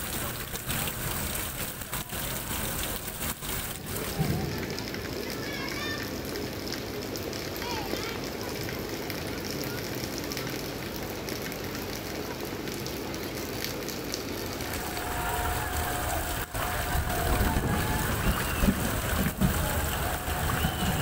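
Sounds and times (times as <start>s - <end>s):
floodwater rushing: 0.0s - 21.0s
rain: 0.0s - 21.0s
wind buffeting microphone: 14.6s - 21.0s.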